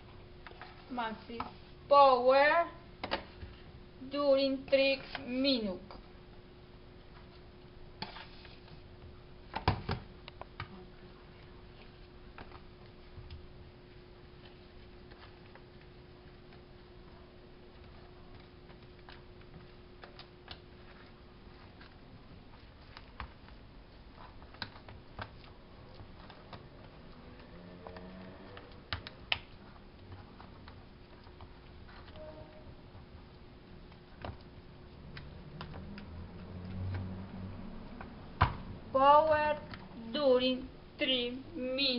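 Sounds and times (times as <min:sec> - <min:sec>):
faint steady hum: 0:00.0 - 0:41.9
spoon scraping plastic tubs: 0:08.0 - 0:08.8.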